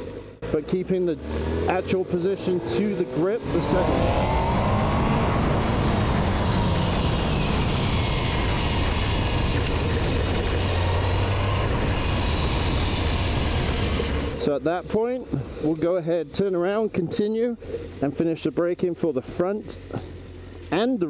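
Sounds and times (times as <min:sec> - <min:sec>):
motorcycle engine slowing: 0:00.0 - 0:16.9
wind noise: 0:03.4 - 0:14.4.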